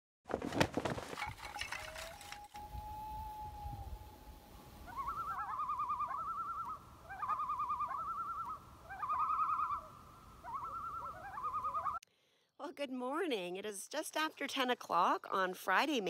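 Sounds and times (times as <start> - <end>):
loon tremolo call: 2.5 - 12.0.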